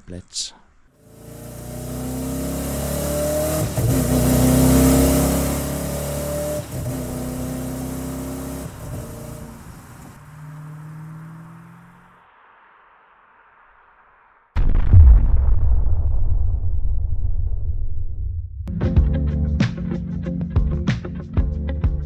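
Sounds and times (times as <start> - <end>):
engine accelerating through gears: 1.0 - 12.1.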